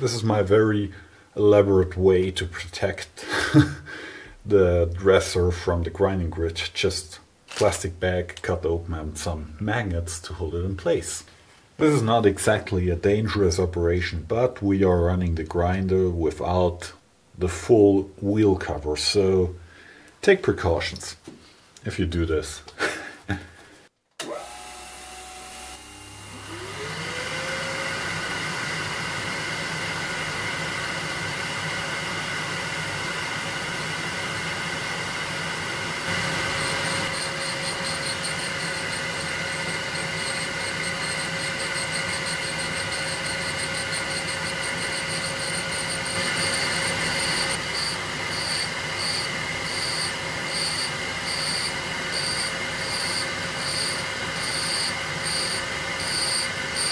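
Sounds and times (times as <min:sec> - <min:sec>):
grinder spindle humming: 0:35.6 - 0:56.9
diamond dresser screeching on wheel: 0:36.6 - 0:56.9.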